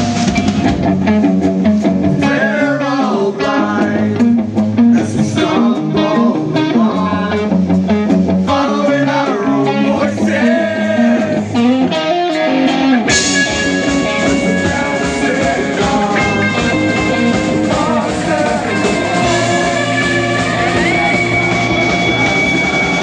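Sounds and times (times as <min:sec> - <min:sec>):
drums and cymbals: 0:00.0 - 0:08.8, 0:10.0 - 0:23.0
electric guitars: 0:00.0 - 0:23.0
man singing: 0:02.2 - 0:04.4, 0:05.0 - 0:07.5, 0:08.5 - 0:12.0, 0:13.4 - 0:21.2.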